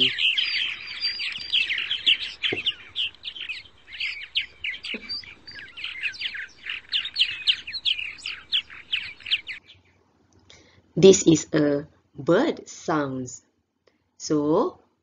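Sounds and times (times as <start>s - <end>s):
bird chirping and twittering: 0.0s - 10.0s.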